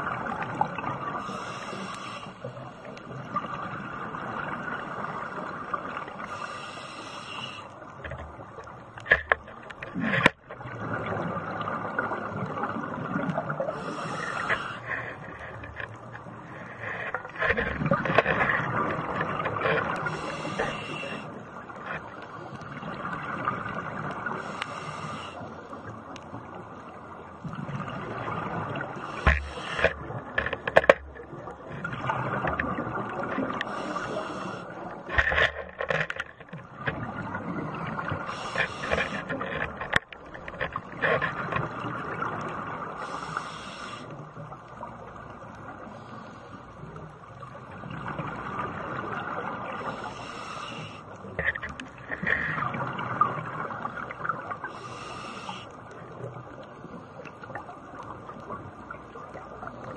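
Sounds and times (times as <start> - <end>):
regulator hissing inhalation: 1.2 - 2.5, 6.3 - 7.7, 13.8 - 14.9, 20.1 - 21.3, 24.4 - 25.4, 29.1 - 29.8, 33.7 - 34.7, 43.0 - 44.1, 50.0 - 51.0, 54.7 - 55.7.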